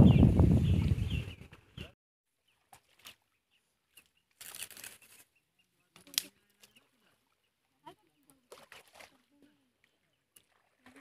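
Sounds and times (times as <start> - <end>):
wind buffeting microphone: 0.0 - 1.9.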